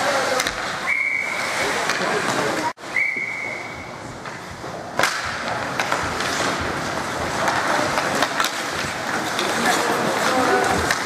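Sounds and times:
skates scraping ice: 0:00.0 - 0:11.0
hockey stick clack: 0:00.3 - 0:00.8, 0:01.8 - 0:02.6, 0:04.2 - 0:11.0
sticks clicking against puck: 0:05.0 - 0:11.0.

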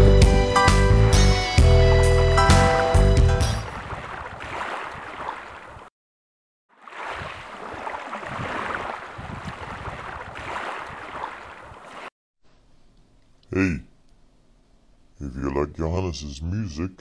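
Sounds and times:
sea waves washing onto shore: 0:03.6 - 0:05.9, 0:06.8 - 0:12.1.

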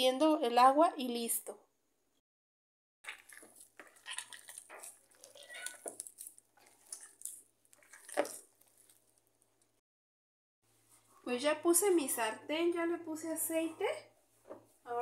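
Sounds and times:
dough squishing: 0:03.0 - 0:09.8.

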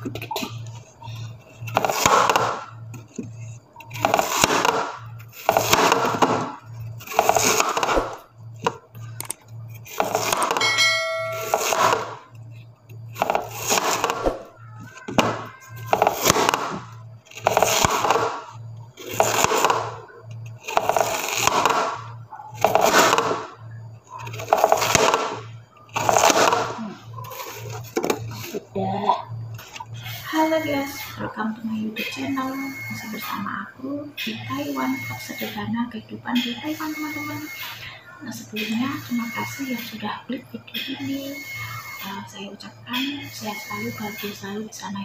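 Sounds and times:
brief ringing tone: 0:10.6 - 0:12.2.

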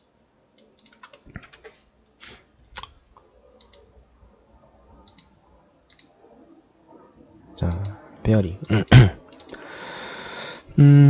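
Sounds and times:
computer mouse and keyboard clicks: 0:00.0 - 0:01.8, 0:02.6 - 0:03.9, 0:04.9 - 0:06.1, 0:07.6 - 0:08.0, 0:08.6 - 0:09.6.

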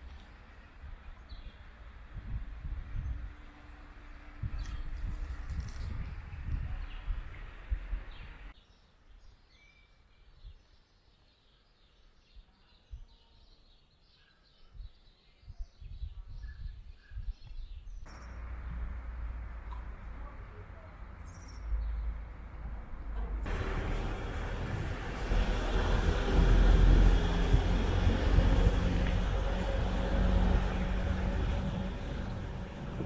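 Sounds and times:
small birds chirping: 0:04.4 - 0:18.9, 0:19.6 - 0:22.4
low rumble: 0:18.1 - 0:33.0.

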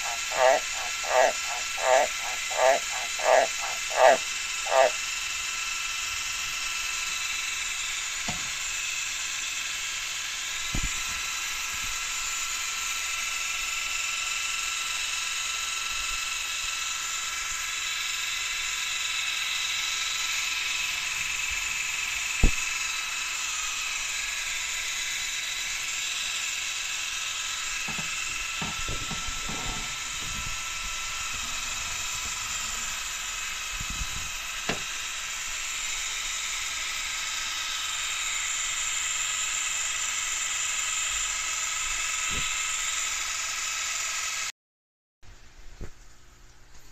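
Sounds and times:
mist maker electric whine: 0:00.0 - 0:44.5.

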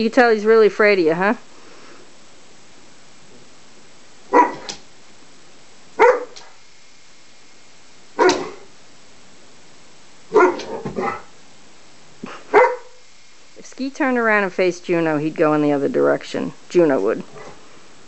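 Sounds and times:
dog barking: 0:04.3 - 0:04.8, 0:06.0 - 0:06.6, 0:08.2 - 0:08.7, 0:10.3 - 0:11.3, 0:12.5 - 0:13.0.

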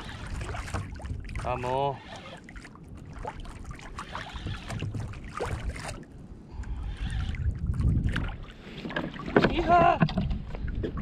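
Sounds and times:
knocks and clicks from kayak: 0:00.0 - 0:01.5, 0:04.2 - 0:06.0, 0:07.8 - 0:11.0
wind and water rumble on microphone: 0:00.0 - 0:11.0.

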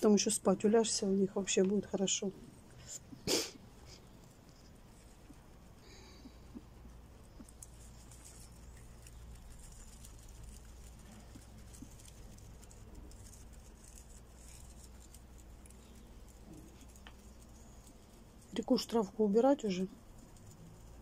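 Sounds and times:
guinea pigs chewing grass: 0:00.0 - 0:21.0
low steady hum: 0:00.0 - 0:21.0
rustling of grass and bedding: 0:04.3 - 0:21.0.

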